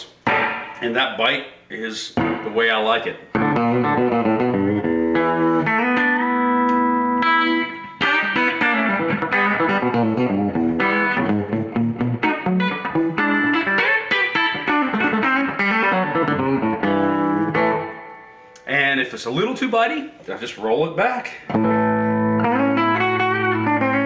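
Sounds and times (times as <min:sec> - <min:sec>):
clean electric guitar notes: 0:03.3 - 0:18.6, 0:21.5 - 0:24.0.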